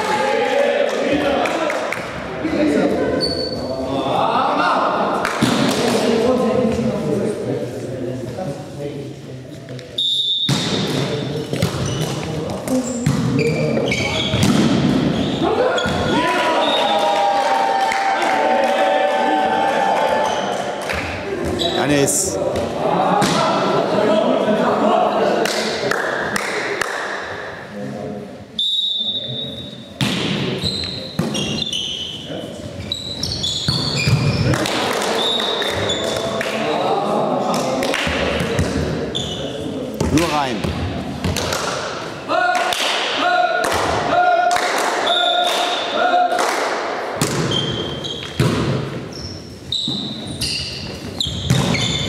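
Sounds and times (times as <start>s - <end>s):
sneakers squeaking on floor: 3.1s - 3.8s, 10.0s - 16.8s, 21.4s - 22.1s, 28.6s - 34.6s, 35.2s - 36.3s, 39.1s - 40.8s, 47.2s - 52.0s
referee's whistle: 10.0s - 10.6s, 16.6s - 16.9s, 28.6s - 29.8s
volleyball hits: 10.4s - 13.4s, 14.2s - 15.2s, 40.0s - 49.0s, 51.3s - 52.0s
hand hitting volleyball: 47.2s - 47.6s
volleyball bouncing on floor: 51.2s - 52.0s.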